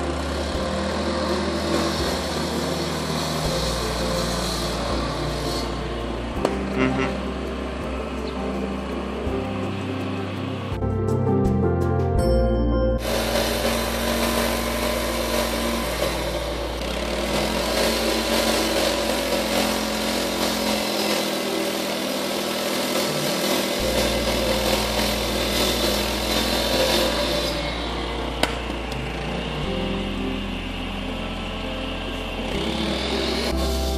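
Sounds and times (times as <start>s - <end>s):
saw blade grinding asphalt: 0.0s - 10.7s, 13.0s - 33.9s
asphalt saw engine hum: 0.0s - 10.9s, 13.0s - 33.9s
brief music: 0.0s - 16.4s.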